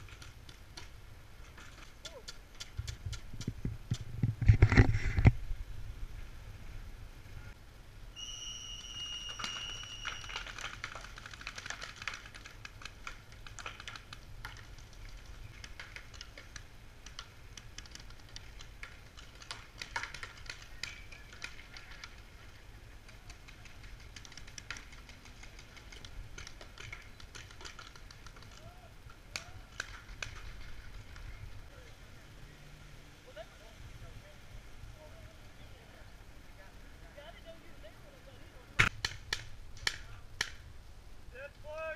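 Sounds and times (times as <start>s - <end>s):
high whistle-like tone: 8.2s - 10.6s.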